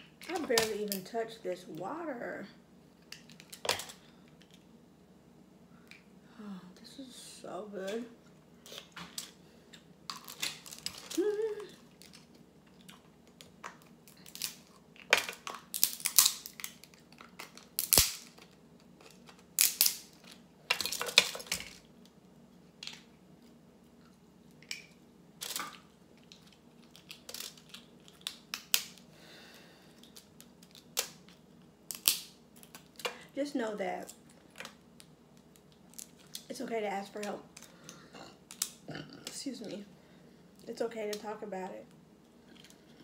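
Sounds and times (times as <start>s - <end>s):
crab shells cracking: 3.0s - 4.6s, 10.1s - 22.2s, 24.5s - 29.1s, 29.9s - 33.2s, 34.1s - 36.5s, 37.2s - 38.8s.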